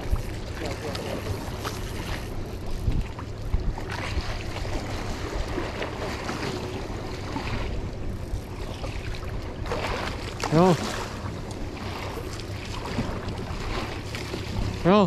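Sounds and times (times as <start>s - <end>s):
water washing around boat: 0.0s - 15.0s
wind buffeting microphone: 0.0s - 15.0s.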